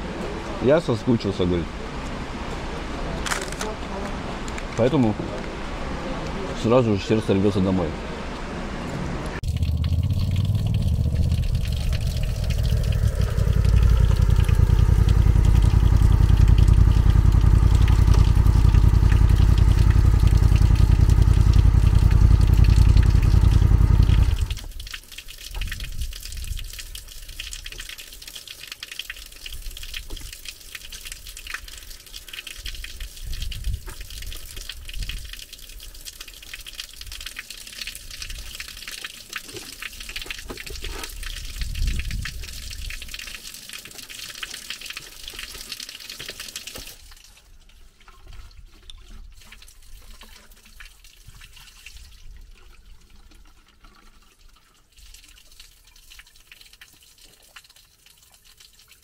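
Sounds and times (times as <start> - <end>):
water running and splashing: 9.3 - 59.0
motorcycle running: 9.4 - 24.6
wind noise on microphone: 25.5 - 27.0, 32.7 - 35.4, 40.6 - 43.2.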